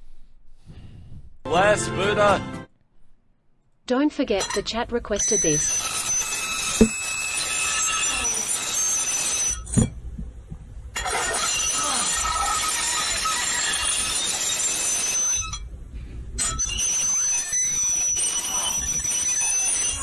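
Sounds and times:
fork scratching a metal plate: 0:11.0 - 0:15.5.

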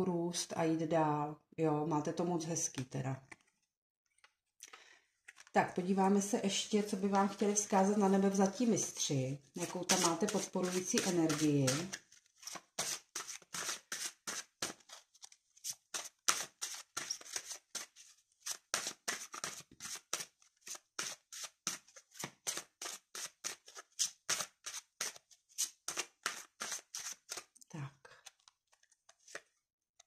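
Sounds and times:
cards being shuffled: 0:05.2 - 0:05.5, 0:09.6 - 0:27.6, 0:28.2 - 0:29.6.

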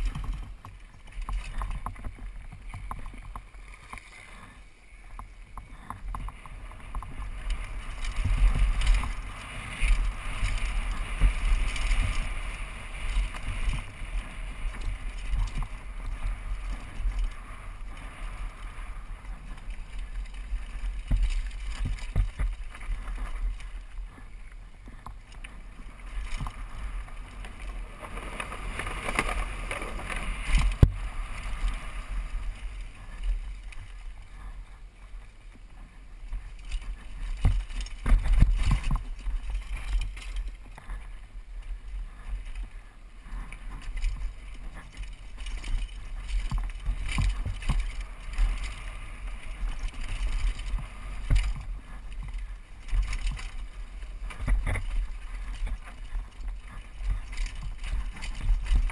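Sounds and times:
bike rattling and knocking: 0:00.0 - 0:04.5, 0:05.1 - 0:35.2, 0:35.8 - 0:41.2, 0:42.2 - 0:58.9
wind buffeting camera: 0:00.0 - 0:58.9
tyres rumbling over dirt and rock: 0:05.7 - 0:34.4.

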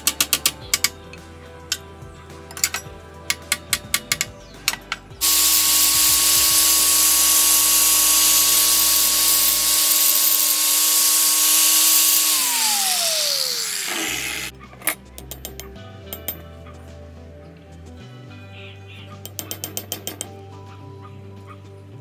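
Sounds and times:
angle grinder grinding metal: 0:02.5 - 0:14.5.

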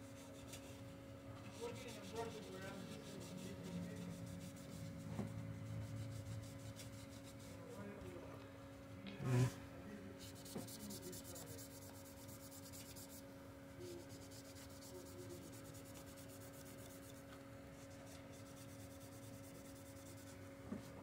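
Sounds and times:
steady low hum: 0:00.0 - 0:21.0
napkin rubbing on metal: 0:01.5 - 0:07.9, 0:10.2 - 0:13.2.

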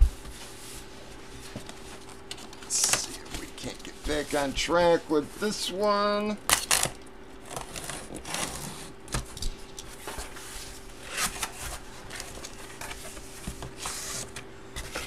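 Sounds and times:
cardboard scraping and rustling: 0:10.0 - 0:15.0.

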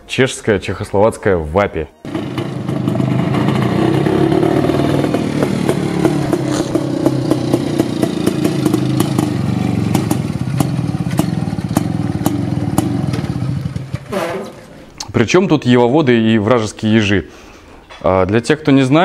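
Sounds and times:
motorcycle engine running: 0:02.1 - 0:14.1.

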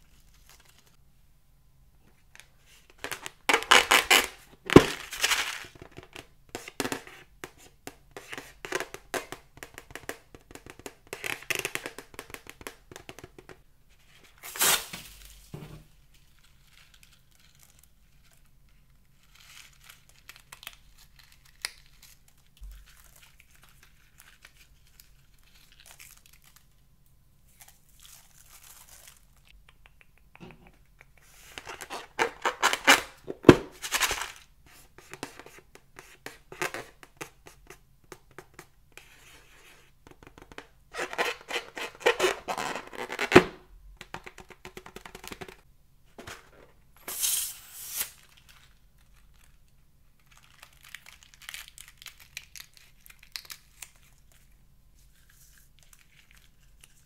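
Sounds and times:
balloon crinkling and rubbing: 0:02.7 - 0:18.2, 0:31.2 - 0:45.7.

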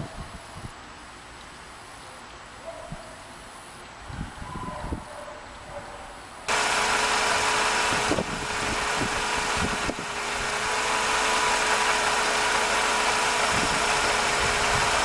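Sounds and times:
car engine idling: 0:06.5 - 0:15.0
engine whine: 0:06.5 - 0:15.0.

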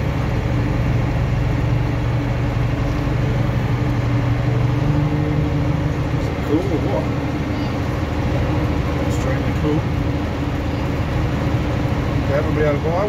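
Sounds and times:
truck engine low hum: 0:00.0 - 0:13.0.

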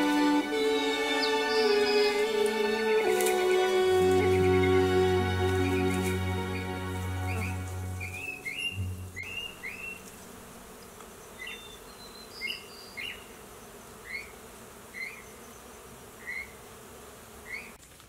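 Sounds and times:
bird chirping: 0:00.0 - 0:10.3, 0:11.3 - 0:13.3
honeybees buzzing: 0:00.0 - 0:17.8.

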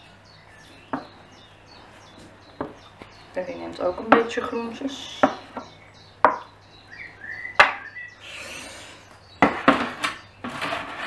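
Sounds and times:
spatula scraping baking tray: 0:08.2 - 0:11.0.

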